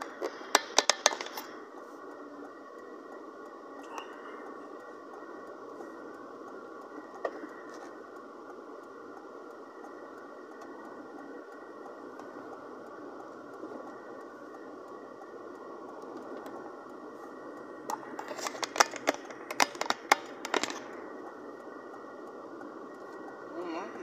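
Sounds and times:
sharp clicks and cracks: 0:00.0 - 0:01.8, 0:06.1 - 0:23.4.

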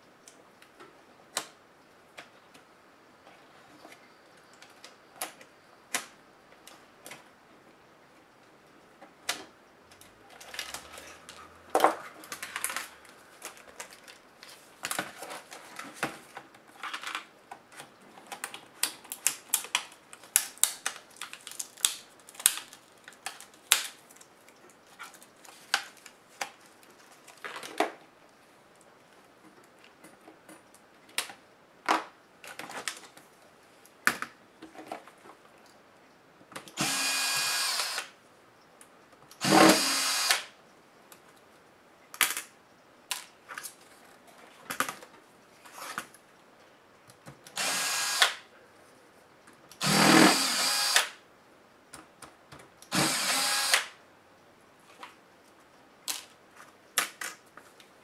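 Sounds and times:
cordless drill-driver running: 0:36.8 - 0:38.1, 0:39.4 - 0:40.5, 0:47.6 - 0:48.4, 0:49.8 - 0:51.2, 0:52.9 - 0:53.9.

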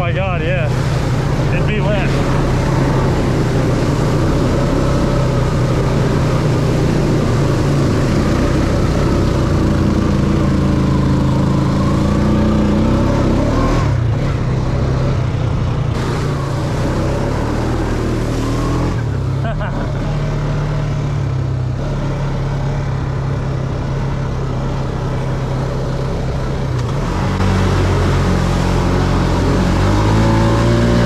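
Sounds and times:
water splashing: 0:00.0 - 0:13.3
atv engine running: 0:00.0 - 0:31.0.

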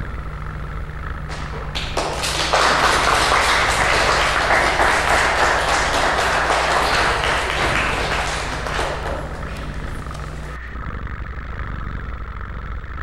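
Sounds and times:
people clapping: 0:01.3 - 0:10.6.

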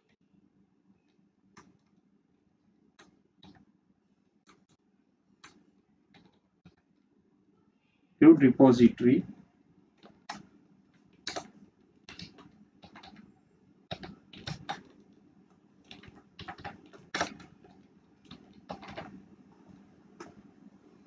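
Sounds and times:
computer keyboard keystrokes: 0:03.0 - 0:03.7, 0:05.4 - 0:06.8, 0:10.0 - 0:13.3, 0:13.9 - 0:15.2, 0:15.8 - 0:19.2, 0:20.2 - 0:20.4.

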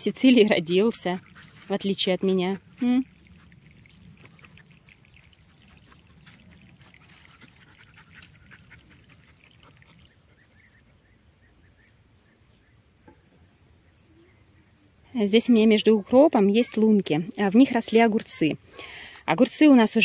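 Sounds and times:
high-pitched insect buzzing: 0:02.5 - 0:10.8.

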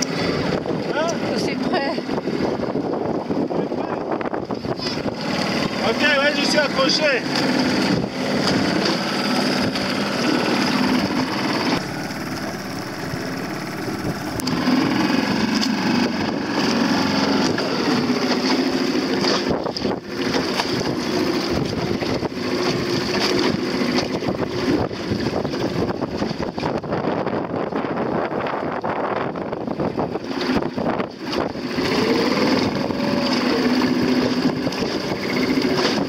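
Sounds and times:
choppy water: 0:00.0 - 0:36.0
outboard motor running: 0:00.0 - 0:36.0
wind buffeting microphone: 0:00.0 - 0:36.0.

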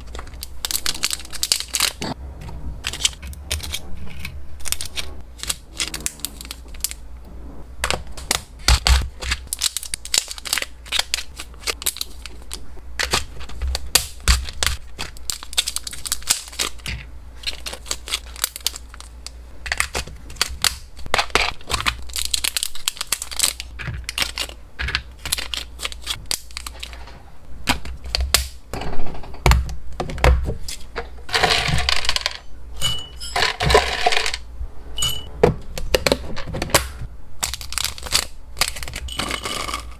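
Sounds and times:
plastic bags rustling: 0:00.0 - 0:02.2, 0:08.2 - 0:27.1, 0:37.4 - 0:39.9
dry pellets rattling into box: 0:38.7 - 0:39.9.

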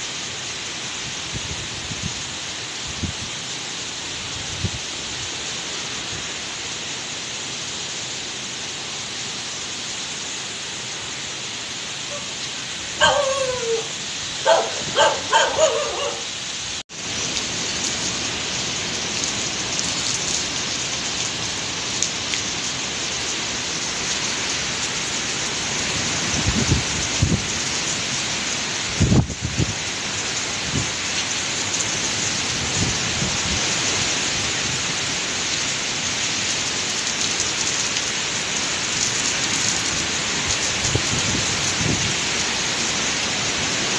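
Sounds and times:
wind and heavy rain: 0:00.0 - 0:43.9
dog barking: 0:12.0 - 0:12.4, 0:13.0 - 0:16.4.

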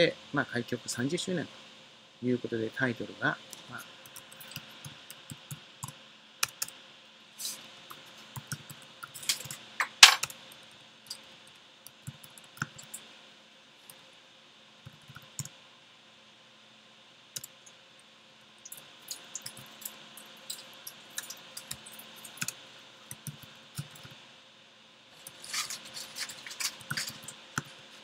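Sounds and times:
keyboard typing clicks: 0:04.1 - 0:06.8.

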